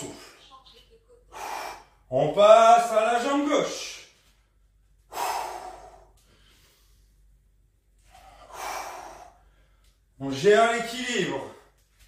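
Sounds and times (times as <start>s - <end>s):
man breathing hard: 1.3s - 2.1s, 5.0s - 7.3s, 8.0s - 10.1s.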